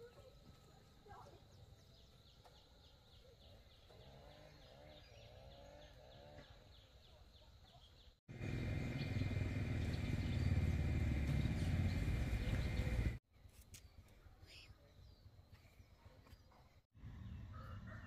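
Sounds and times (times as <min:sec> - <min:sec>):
bird chirping: 0:00.0 - 0:13.2.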